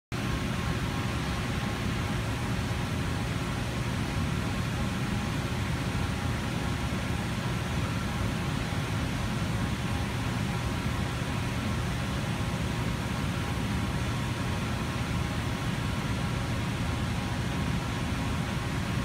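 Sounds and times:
cooling fans humming: 0:00.1 - 0:19.0.

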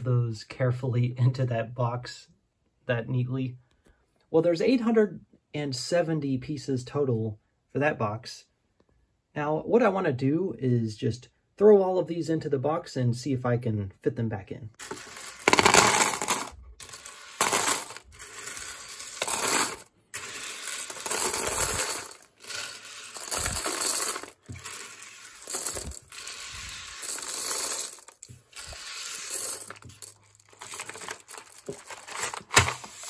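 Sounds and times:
plastic pieces clattering into box: 0:14.8 - 0:33.0
plastic pieces shuffling: 0:14.8 - 0:33.0.

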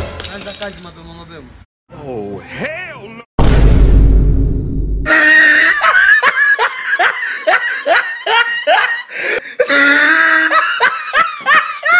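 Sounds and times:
person laughing loudly: 0:05.1 - 0:11.9.

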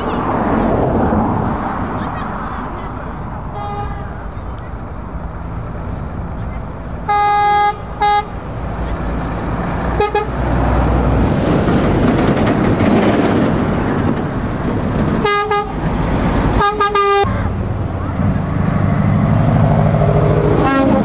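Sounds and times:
heavy truck engine driving by: 0:00.0 - 0:21.0
truck horn blasts: 0:03.6 - 0:04.0, 0:07.1 - 0:08.4, 0:10.0 - 0:10.5, 0:15.2 - 0:15.8, 0:16.6 - 0:17.3, 0:20.5 - 0:21.0.

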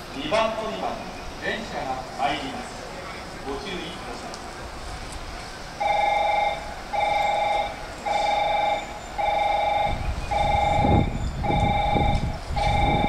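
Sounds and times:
train arriving rumble: 0:00.0 - 0:13.0
pulsing electronic warning tone: 0:05.8 - 0:13.0.

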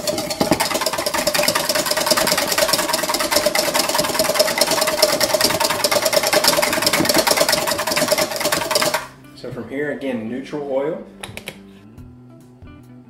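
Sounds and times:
whisk rattling in metal bowl: 0:00.0 - 0:09.1.

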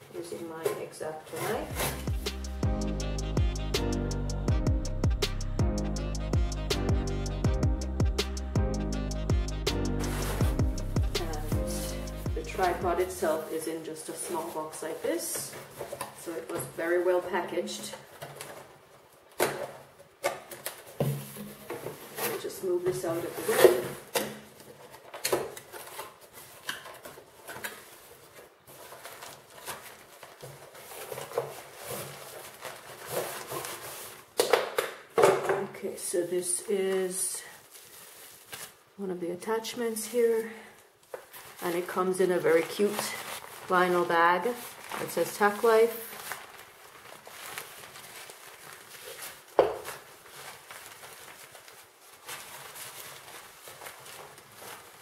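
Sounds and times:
bag rustling: 0:00.0 - 0:02.7, 0:09.7 - 0:19.8, 0:20.5 - 0:34.4, 0:36.0 - 0:39.0, 0:40.1 - 0:55.0
cardboard rubbing and scraping: 0:00.2 - 0:02.6, 0:09.9 - 0:13.5
handling noise: 0:09.8 - 0:17.2.

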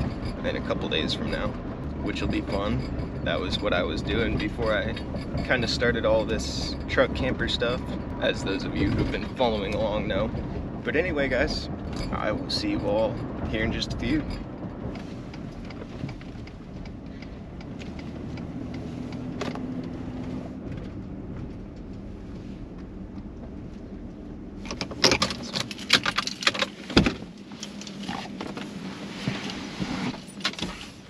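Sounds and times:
engine and road rumble: 0:00.0 - 0:31.0
keys and door clicks: 0:24.6 - 0:28.4.

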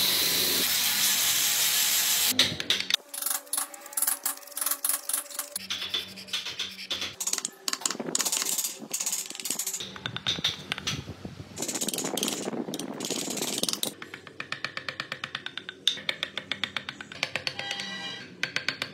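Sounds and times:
chisel cutting and scraping wood: 0:02.7 - 0:09.8.

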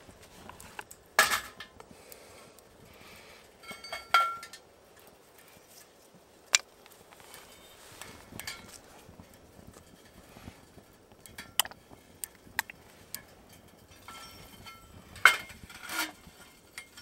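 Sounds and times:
metal cookware clatter: 0:01.2 - 0:01.8, 0:03.6 - 0:04.6, 0:13.2 - 0:17.0
frying pan clinking on metal stove: 0:03.6 - 0:04.6.

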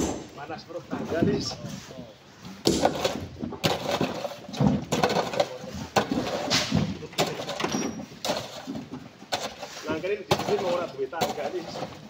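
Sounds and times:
hand tool striking rock: 0:10.3 - 0:11.9.

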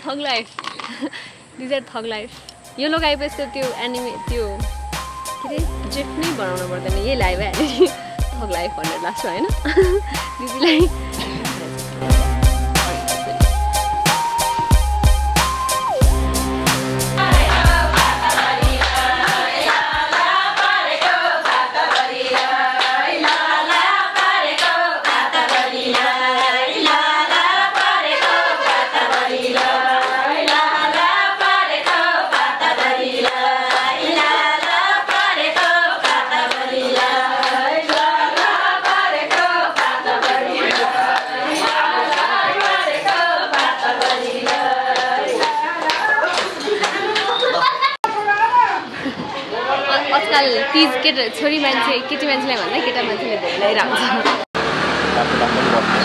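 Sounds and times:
women singing folk song: 0:17.2 - 0:46.4
hand clapping: 0:17.3 - 0:47.4.

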